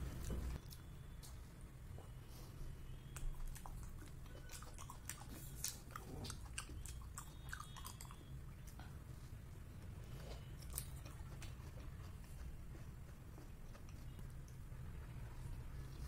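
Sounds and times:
biting and chewing bun: 3.1s - 8.9s, 9.6s - 16.0s.

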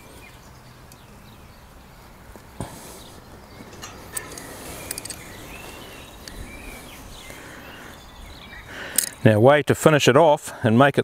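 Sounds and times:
birds chirping: 0.0s - 10.0s
spanner metallic clicks: 3.6s - 6.6s, 8.9s - 9.2s.

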